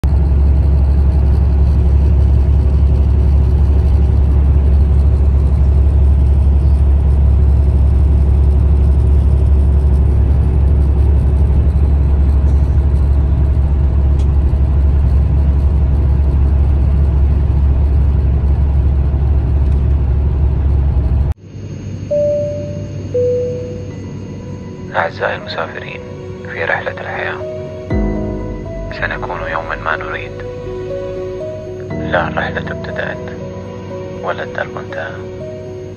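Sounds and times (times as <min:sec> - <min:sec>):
car road and tyre noise: 0:00.0 - 0:21.4
held musical notes: 0:22.1 - 0:35.9.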